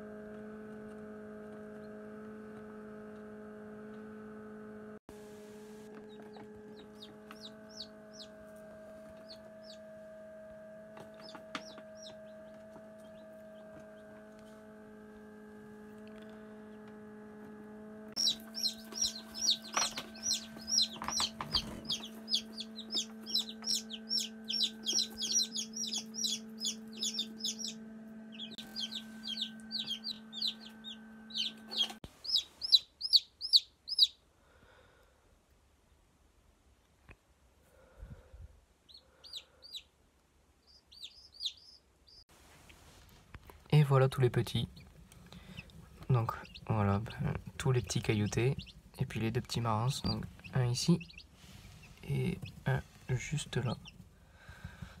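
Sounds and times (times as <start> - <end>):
incubator hum: 0.0 - 35.1, 40.7 - 55.0
chicks peeping: 5.9 - 9.9, 10.9 - 14.6, 18.2 - 34.2, 38.9 - 40.0, 40.6 - 42.2, 43.7 - 55.0.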